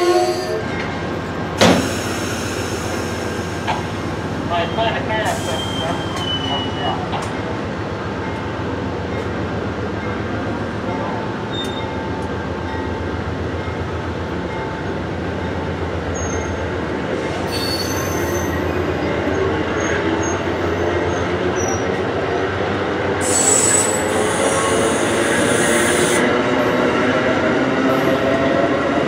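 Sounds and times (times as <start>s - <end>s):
train wheels rumbling on rails: 0.0s - 29.0s
wheel squeals: 5.4s - 7.0s.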